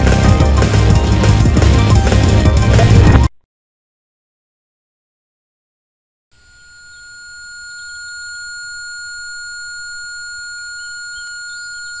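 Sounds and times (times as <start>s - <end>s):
high ringing tone: 6.4s - 12.0s.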